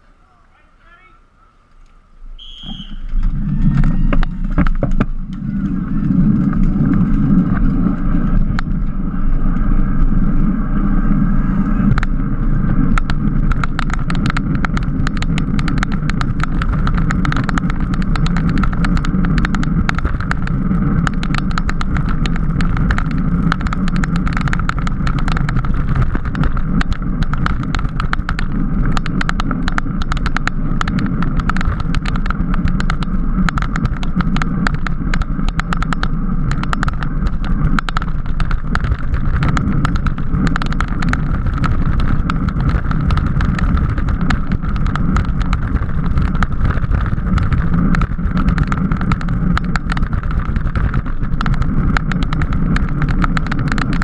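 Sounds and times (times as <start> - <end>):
tyre road rumble: 0.0 - 54.0
wind rushing over camera: 1.7 - 54.0
sharp rattling clicks: 12.8 - 54.0.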